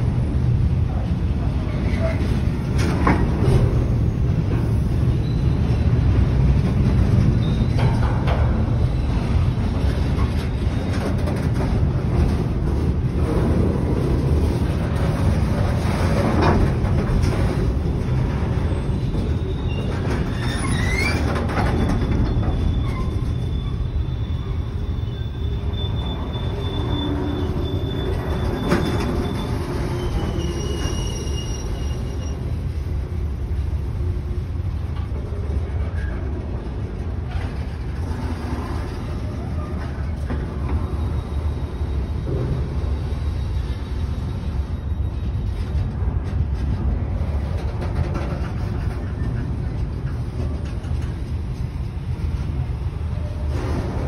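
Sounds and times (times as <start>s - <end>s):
freight train wheels rumbling on rails: 0.0s - 54.0s
high wheel squeals: 5.1s - 5.9s, 7.4s - 8.0s, 18.5s - 34.1s, 37.3s - 45.8s.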